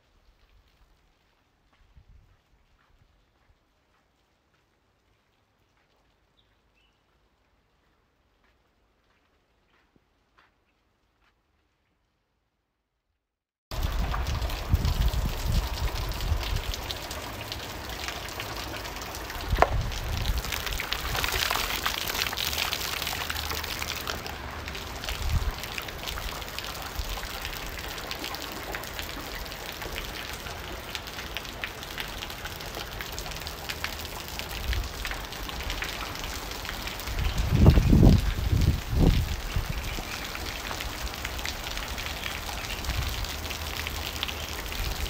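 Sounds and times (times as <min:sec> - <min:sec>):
heavy rain splashing: 0:13.7 - 0:45.0.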